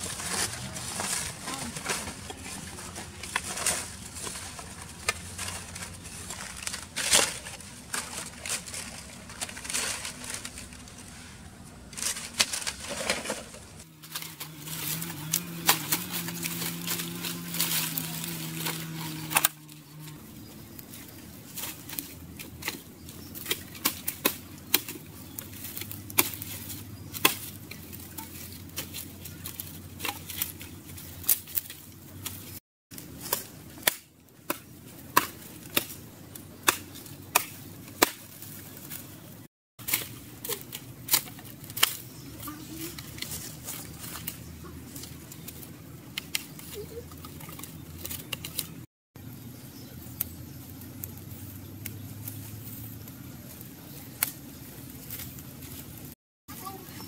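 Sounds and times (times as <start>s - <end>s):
fire crackling and popping: 39.8s - 56.2s.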